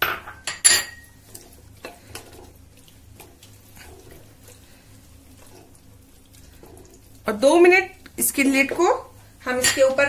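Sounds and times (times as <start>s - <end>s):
spatula scraping and stirring: 0.5s - 10.0s.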